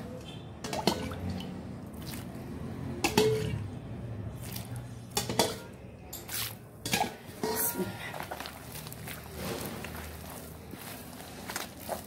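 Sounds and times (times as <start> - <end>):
sticky dough squelching: 1.2 - 2.8, 4.2 - 5.4, 6.0 - 12.0.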